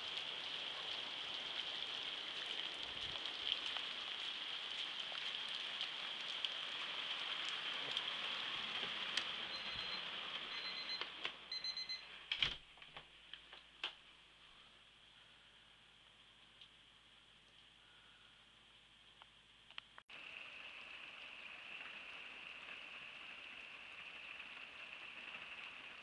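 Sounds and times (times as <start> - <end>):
heavy rain falling: 0.0 - 11.5, 20.1 - 26.0
short high electronic beeps: 9.5 - 12.0.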